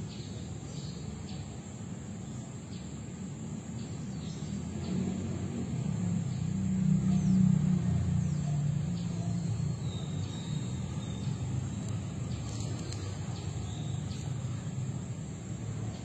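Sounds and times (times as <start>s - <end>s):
passing vehicle rumble: 4.0s - 16.0s.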